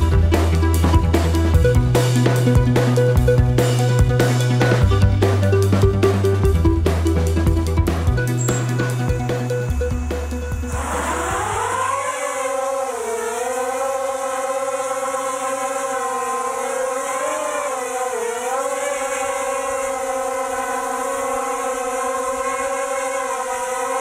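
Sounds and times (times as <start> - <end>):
quadcopter motors whining: 7.8 - 24.0.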